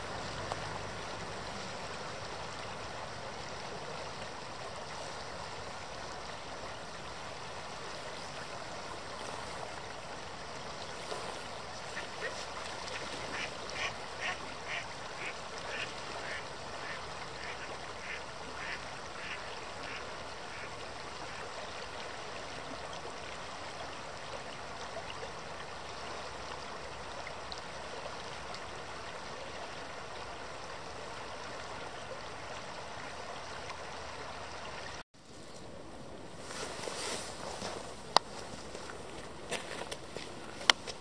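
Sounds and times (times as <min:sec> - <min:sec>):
running water hiss: 0:00.0 - 0:41.0
ducks quacking: 0:11.8 - 0:20.7.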